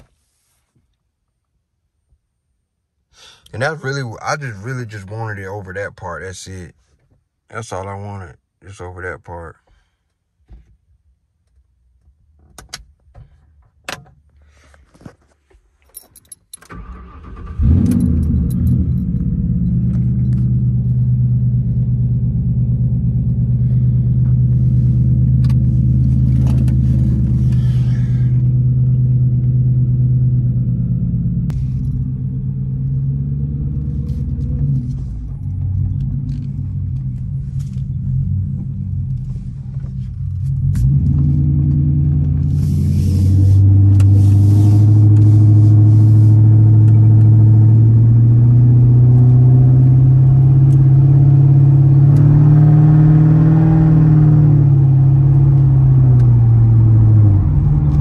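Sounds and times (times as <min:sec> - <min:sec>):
keys clicking and jingling: 0:15.8 - 0:16.7, 0:17.9 - 0:20.3
car engine starting and idling: 0:16.2 - 0:58.0.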